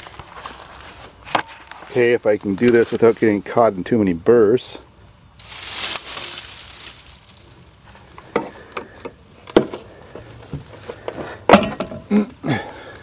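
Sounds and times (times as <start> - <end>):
dry weeds rustling and crackling: 0.0 - 13.0.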